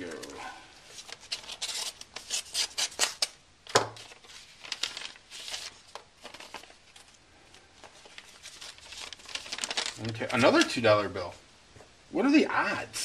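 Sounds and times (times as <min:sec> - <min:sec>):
paper rustling: 0:00.0 - 0:11.0
paper envelope tearing: 0:00.9 - 0:03.4, 0:04.0 - 0:06.8, 0:08.0 - 0:10.9
sharp paper snap: 0:01.4 - 0:04.2.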